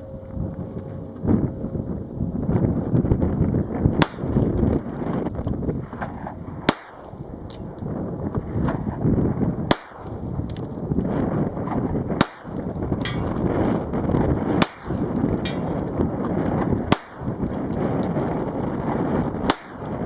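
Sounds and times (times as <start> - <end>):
pistol shots: 4.0 - 4.4, 6.6 - 7.6, 9.7 - 10.2, 12.2 - 13.3, 14.6 - 15.7, 16.9 - 17.4, 19.4 - 20.0.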